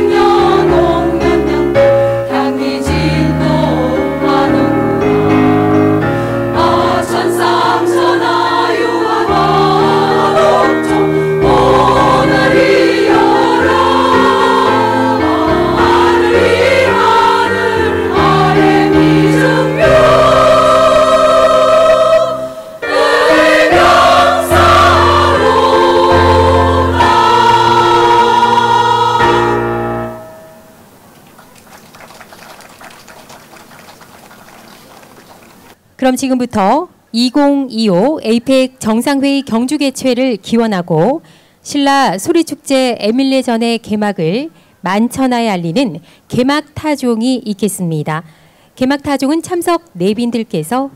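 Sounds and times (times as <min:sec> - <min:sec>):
women's choir singing: 0:00.0 - 0:30.6
instrumental accompaniment: 0:00.0 - 0:35.7.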